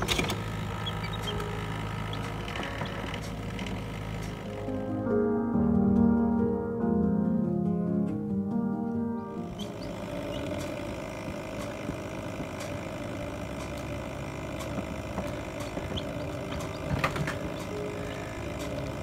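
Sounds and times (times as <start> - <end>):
computer fan humming: 0.0 - 5.5, 8.2 - 19.0
chicks chirping: 0.8 - 2.8, 9.4 - 10.7, 15.8 - 18.4.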